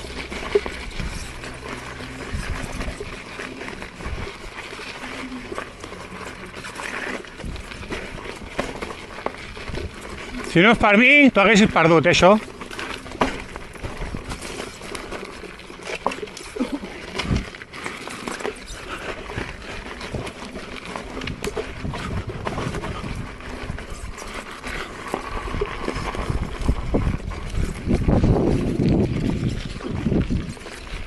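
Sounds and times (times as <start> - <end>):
tyre crunching on stony ground: 0.0 - 31.0
wind buffeting microphone: 21.2 - 24.3, 25.2 - 31.0.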